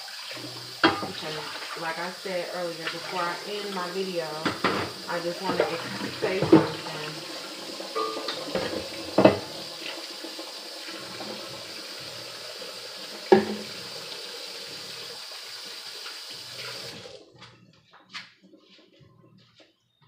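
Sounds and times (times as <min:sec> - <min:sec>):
tap running into sink: 0:00.0 - 0:01.7, 0:04.3 - 0:12.1, 0:13.0 - 0:17.0.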